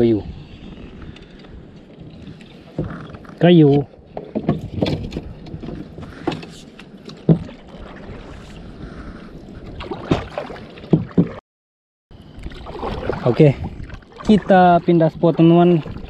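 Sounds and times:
paddle dipping through water: 0.8s - 11.4s, 12.2s - 16.0s
paddle knocking plastic hull: 7.1s - 7.8s, 10.0s - 11.4s.

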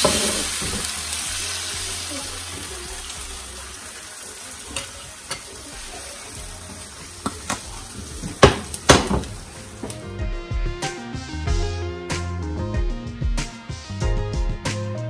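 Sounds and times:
pan clanking on stovetop: 0.0s - 0.9s, 4.7s - 5.5s, 7.2s - 10.0s
batter sizzling in frying pan: 0.0s - 10.2s
guitar music: 4.8s - 15.0s.

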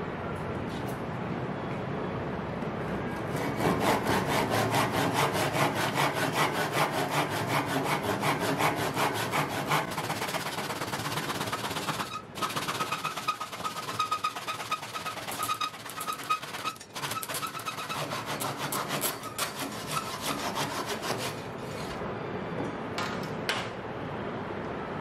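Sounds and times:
hand saw cutting wood: 3.3s - 22.0s.

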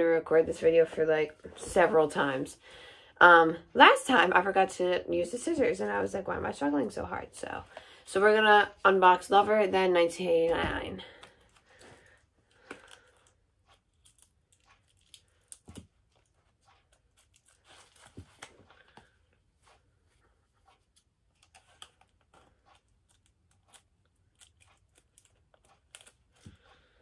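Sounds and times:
plastic wrapping crinkling and tearing: 21.3s - 26.6s.

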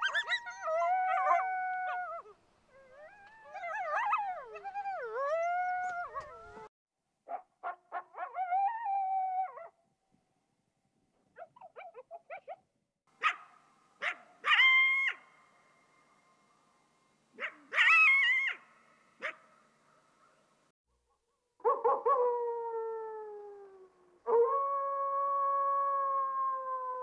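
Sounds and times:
coyote howl: 0.0s - 6.7s.

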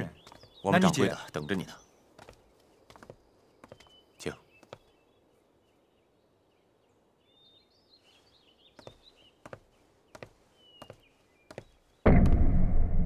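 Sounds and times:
faint footsteps of man walking: 0.0s - 5.5s, 7.7s - 12.4s
small birds chirping: 0.0s - 12.1s.

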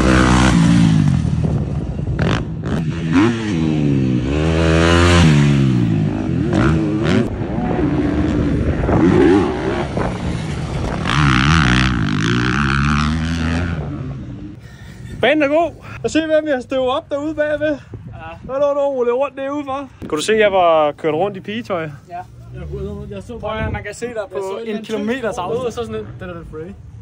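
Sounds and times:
motocross bike engines revving: 0.0s - 16.6s, 20.0s - 27.0s.

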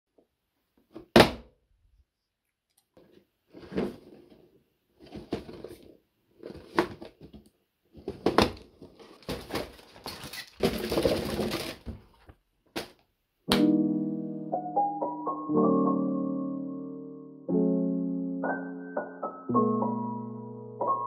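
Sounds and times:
cardboard box sliding and opening: 3.5s - 7.2s
plastic bags rustling and crinkling: 8.0s - 12.4s
piano music: 13.5s - 21.0s.

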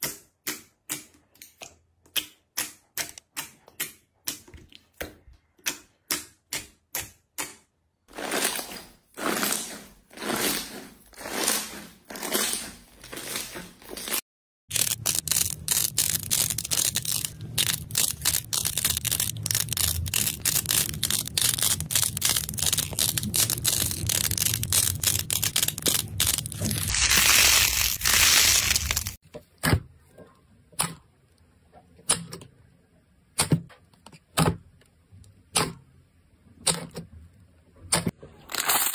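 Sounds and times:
slime squishing and squelching: 8.1s - 29.2s
slime crackling: 14.7s - 29.2s.

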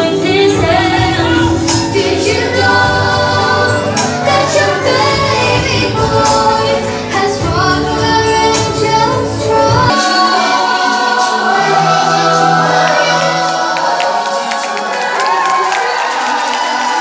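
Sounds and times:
bass of dance music: 0.0s - 10.3s
choir-style singing over loudspeakers: 0.0s - 17.0s.

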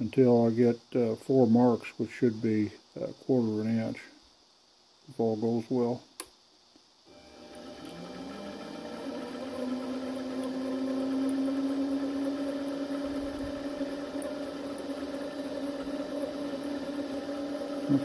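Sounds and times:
drill boring into steel: 7.1s - 18.0s
metal lathe motor whine: 7.1s - 18.0s.

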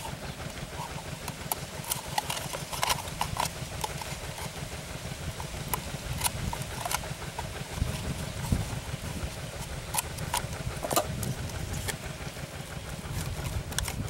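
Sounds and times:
low steady rumble: 0.0s - 14.0s
scissors snipping paper: 0.8s - 4.6s.

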